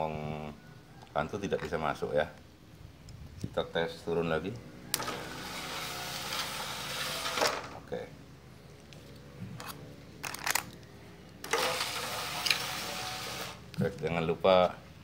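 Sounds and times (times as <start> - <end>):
electric motor whirring: 4.9 - 7.8, 11.4 - 13.7.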